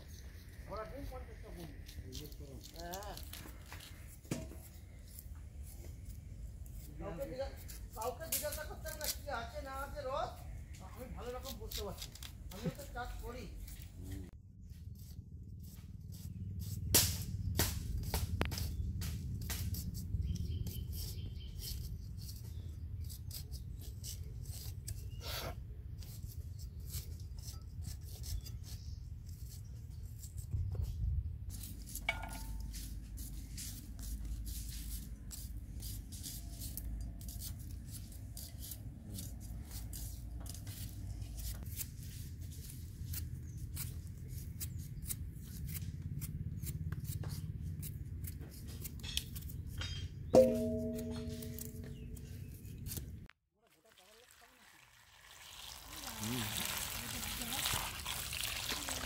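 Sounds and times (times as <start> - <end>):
knife peeling and cutting vegetables: 0.0 - 53.4.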